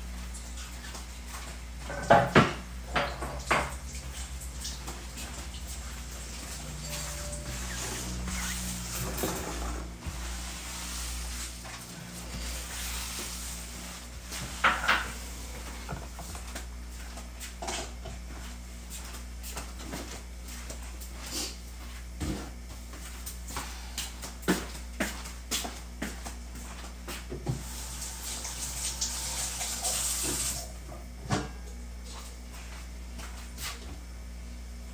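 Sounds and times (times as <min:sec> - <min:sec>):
steady low hum: 0:00.0 - 0:27.9
dishes clattering: 0:01.9 - 0:03.7.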